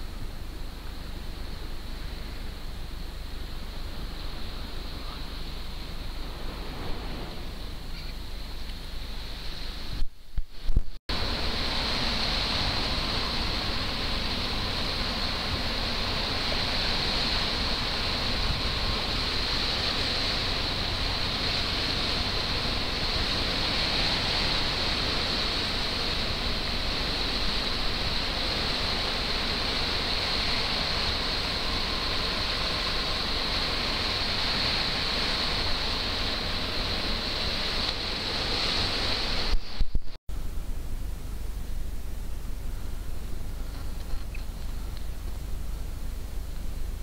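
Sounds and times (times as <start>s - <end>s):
wind: 0.0s - 47.0s.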